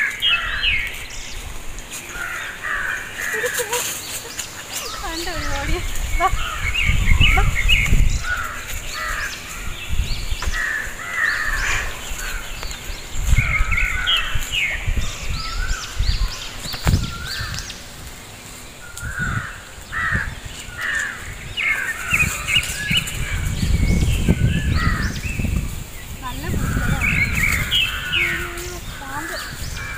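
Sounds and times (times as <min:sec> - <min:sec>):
crows cawing: 0:02.1 - 0:04.1, 0:08.2 - 0:09.8, 0:10.4 - 0:12.6, 0:19.0 - 0:22.5
low microphone rumble: 0:04.9 - 0:29.9.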